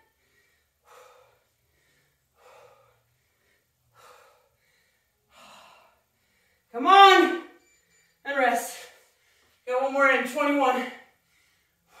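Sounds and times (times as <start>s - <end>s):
woman breathing heavily: 0.0s - 6.8s, 8.8s - 9.6s, 11.0s - 12.0s.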